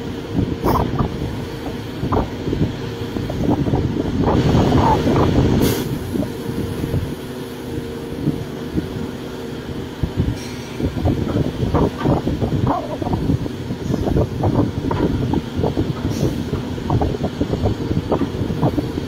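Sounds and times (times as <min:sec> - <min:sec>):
excavator diesel engine under load: 0:00.0 - 0:19.0
excavator bucket digging earth and rock: 0:10.0 - 0:19.0.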